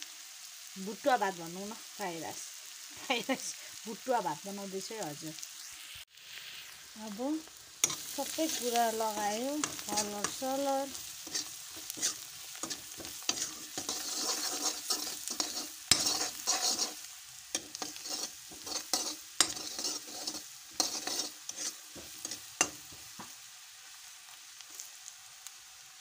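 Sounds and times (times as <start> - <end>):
vegetables sizzling in oil: 0.0 - 26.0
steel ladle scraping pan: 7.8 - 23.1.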